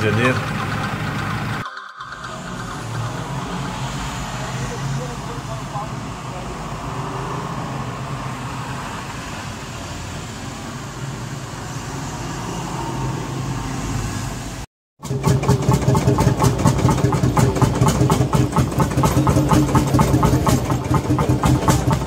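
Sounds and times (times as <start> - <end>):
vintage tractor engine pulsing: 0.0 - 6.0, 15.0 - 22.0
tractor engine driving past: 0.0 - 9.4, 15.0 - 22.0.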